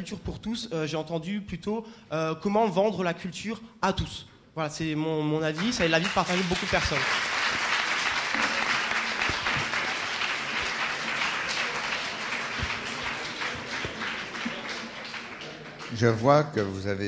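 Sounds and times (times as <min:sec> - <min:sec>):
audience applauding: 0:05.5 - 0:16.6.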